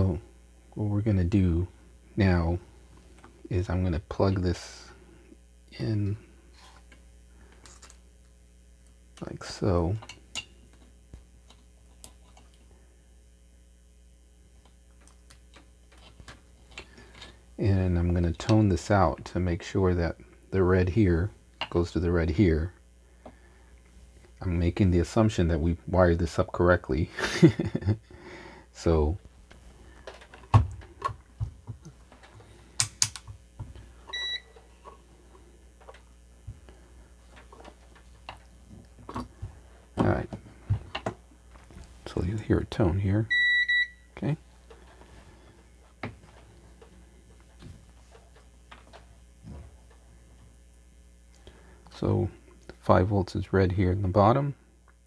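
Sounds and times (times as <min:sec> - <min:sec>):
mains hum: 0:00.0 - 0:55.0
test probes clicking and tapping: 0:30.1 - 0:34.6
multimeter short high beep: 0:34.1 - 0:34.6, 0:43.3 - 0:44.1.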